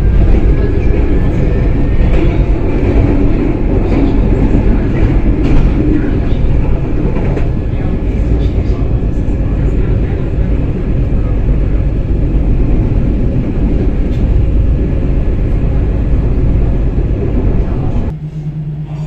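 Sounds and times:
low hum: 0.0s - 19.0s
tram wheels rumbling on rails: 0.0s - 19.0s.

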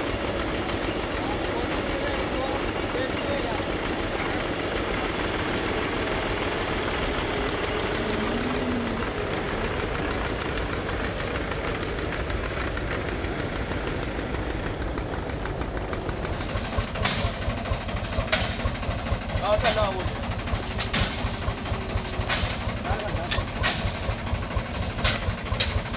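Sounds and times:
diesel tractor engine running: 0.0s - 25.9s
mechanical clatter: 15.0s - 25.9s
sharp scrapes or strikes: 20.5s - 21.3s, 21.9s - 22.6s, 24.7s - 25.9s.

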